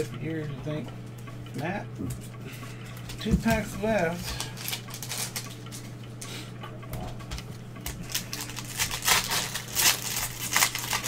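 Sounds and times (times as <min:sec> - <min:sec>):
foil pack crinkling and tearing: 0:04.2 - 0:05.6, 0:07.8 - 0:11.0.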